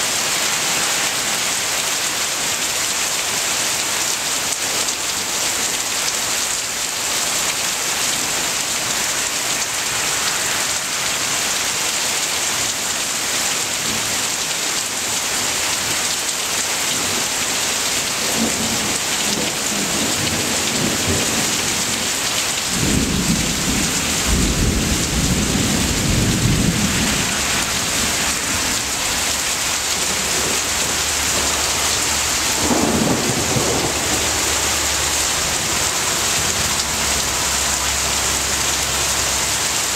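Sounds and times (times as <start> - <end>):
heavy rain on foliage: 0.0 - 39.9
thunder rumbling: 22.7 - 35.9.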